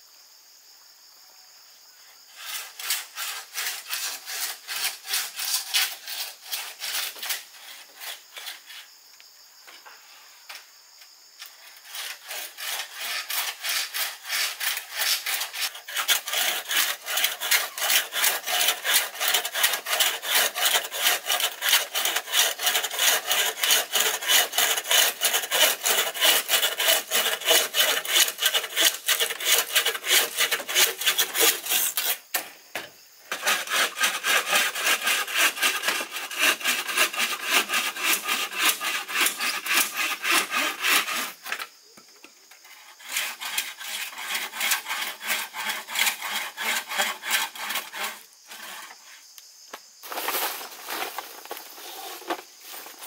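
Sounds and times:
hand saw cutting bamboo: 2.4s - 8.8s, 11.8s - 32.5s, 33.3s - 41.6s, 42.9s - 49.0s.

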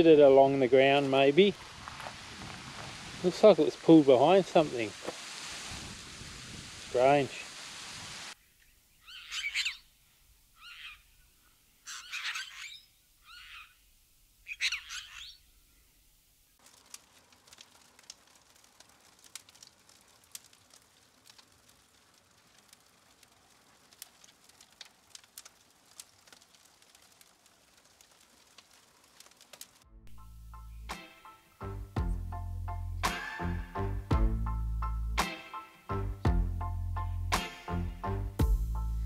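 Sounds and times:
wood fire crackling: 0.0s - 8.4s, 16.0s - 39.0s
bird calling: 8.4s - 16.0s.

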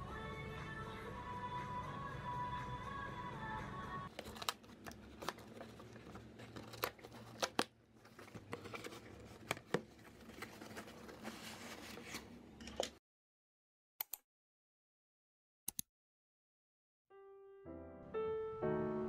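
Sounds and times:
background music: 0.0s - 4.1s, 17.1s - 19.0s.

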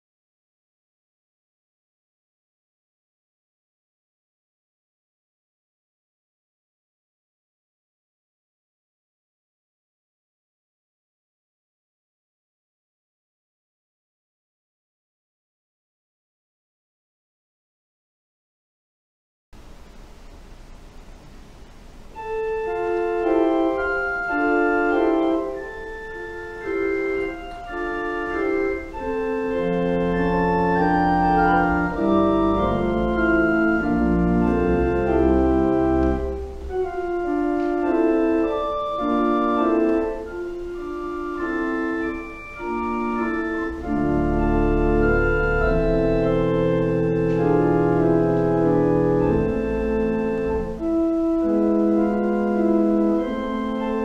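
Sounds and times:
deep organ pedal bass notes: 19.7s - 54.0s
church organ chords: 19.8s - 54.0s.

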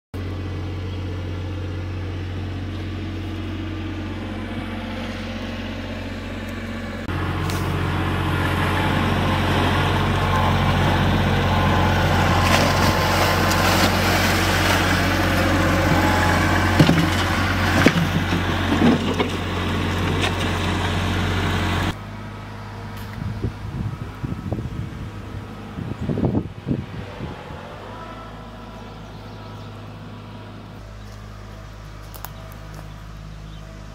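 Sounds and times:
engine running steadily: 0.2s - 33.9s.

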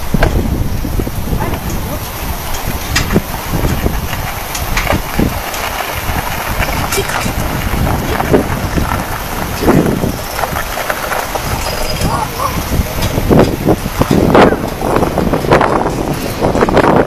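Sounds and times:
fast-flowing river: 0.0s - 17.0s
wind: 0.0s - 17.0s.

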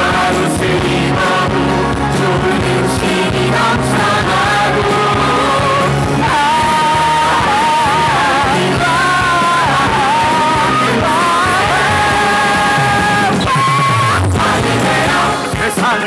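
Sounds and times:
instrumental accompaniment: 0.0s - 16.0s
man belting a melody: 4.5s - 16.0s.

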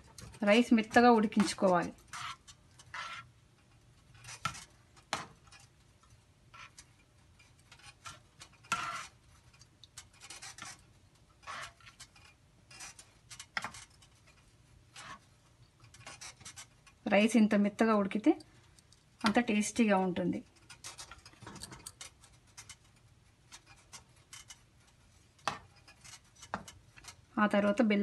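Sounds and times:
metal spoon scraping steel pan: 0.5s - 3.3s, 6.6s - 10.8s, 11.4s - 14.3s.

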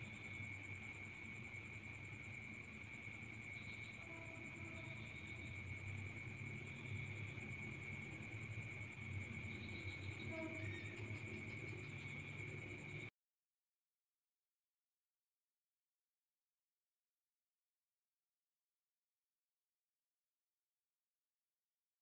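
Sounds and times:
crickets trilling: 0.0s - 13.1s.

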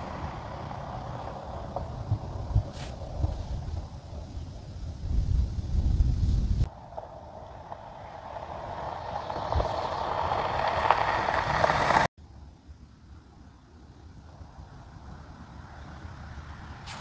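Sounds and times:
tyre noise on dirt road: 0.0s - 12.1s, 15.0s - 17.0s
wind rumble on microphone: 0.0s - 12.1s.

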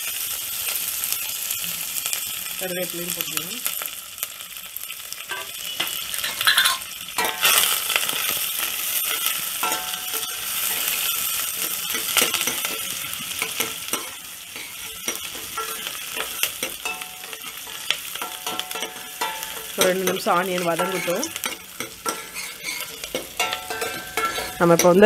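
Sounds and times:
onions sizzling in hot oil: 0.0s - 25.0s
spatula scraping pot: 9.1s - 25.0s.

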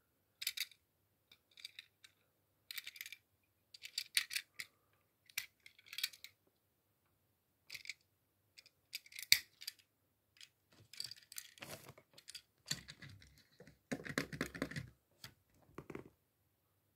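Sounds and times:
toy car clicking and tapping: 0.4s - 6.4s, 8.6s - 11.6s
rustling and scraping: 10.7s - 14.0s.

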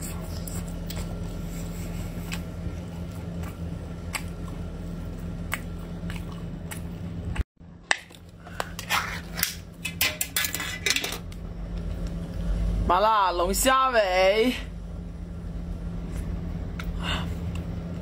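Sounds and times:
close chewing: 0.0s - 7.4s
steady low hum: 0.0s - 18.0s.

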